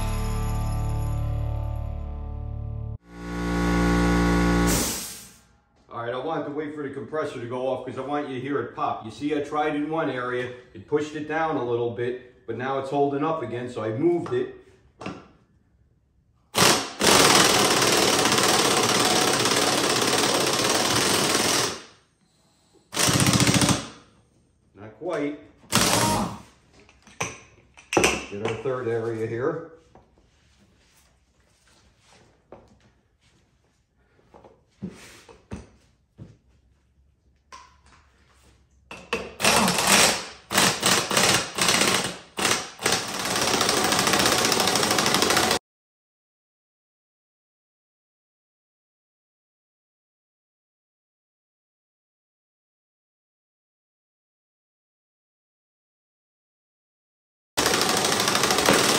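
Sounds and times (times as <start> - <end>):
impact wrench hammering: 16.6 - 21.9, 22.9 - 24.0, 25.7 - 26.4, 38.9 - 45.6, 57.6 - 58.9.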